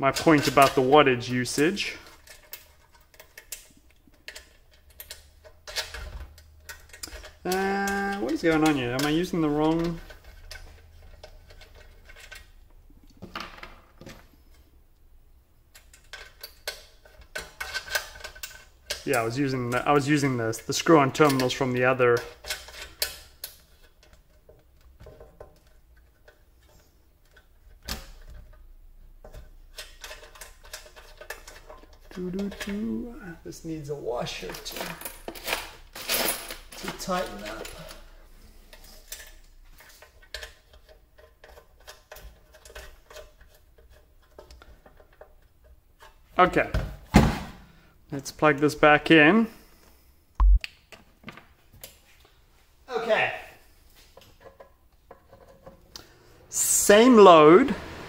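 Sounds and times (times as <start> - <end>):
metallic clicks of cable terminal: 2.2 - 7.5.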